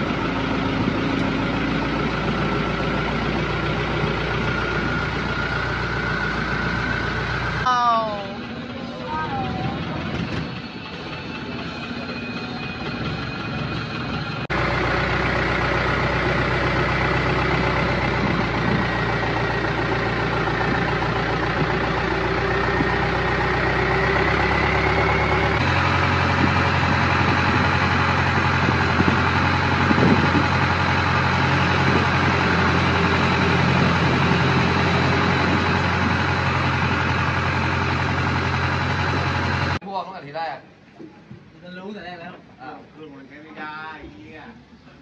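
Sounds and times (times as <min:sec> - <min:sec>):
boat engine running: 0:00.0 - 0:39.8.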